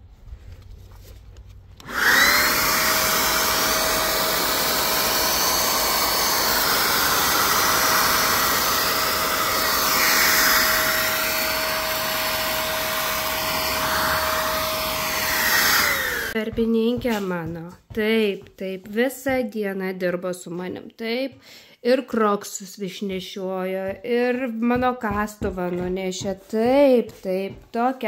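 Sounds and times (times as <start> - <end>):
electric motor machine whining: 1.8 - 16.4.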